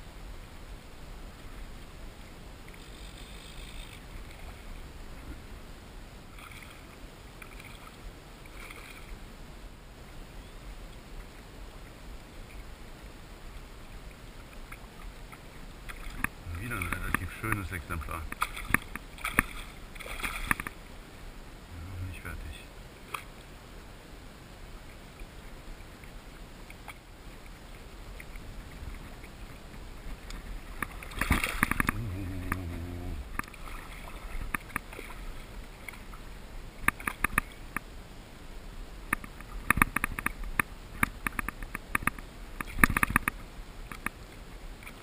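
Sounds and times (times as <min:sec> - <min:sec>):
sea water sloshing: 0:06.3 - 0:09.2, 0:14.4 - 0:20.9, 0:26.0 - 0:37.7
small water splashes: 0:06.3 - 0:09.2, 0:14.4 - 0:20.9, 0:26.0 - 0:37.8.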